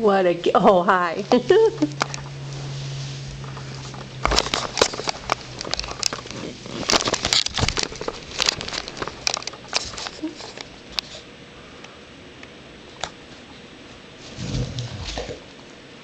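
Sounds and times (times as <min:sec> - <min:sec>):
puppy claws scrabbling on floor: 0:03.3 - 0:11.2.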